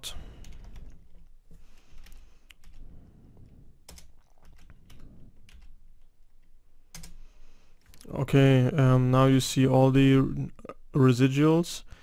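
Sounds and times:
computer keyboard typing: 0.4 - 2.8, 3.8 - 6.1, 6.9 - 7.2.

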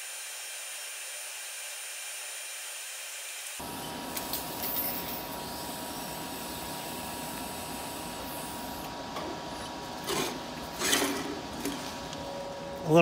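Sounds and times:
welding arc hiss and tone: 0.0 - 9.8.

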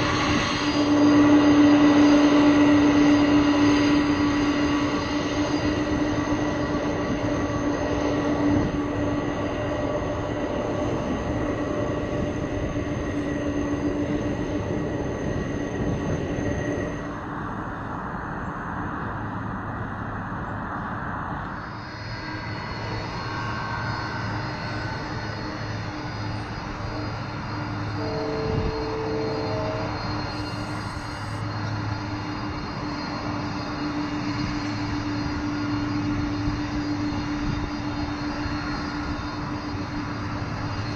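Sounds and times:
jet engines running: 0.0 - 40.9.

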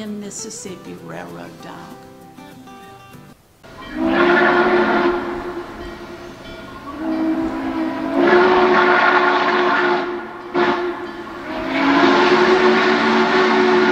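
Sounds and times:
train whistle blasts: 3.7 - 13.9.

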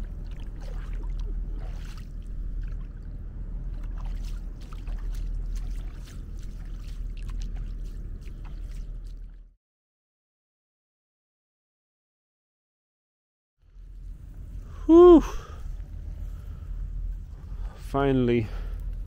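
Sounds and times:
shallow water splashing: 0.0 - 9.5
low rumble: 0.0 - 9.6, 13.6 - 19.0.

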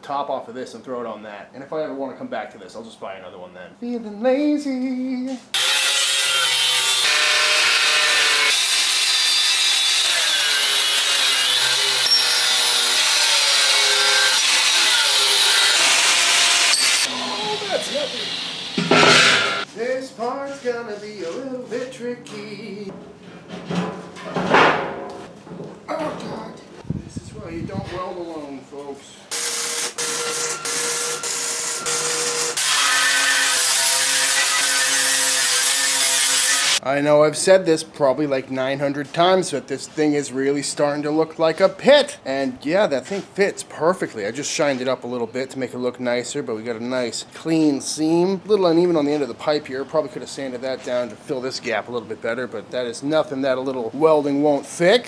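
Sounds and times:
angle grinder cutting metal: 5.6 - 19.7, 29.3 - 36.8
welder crackling: 5.6 - 19.7, 29.3 - 36.8.

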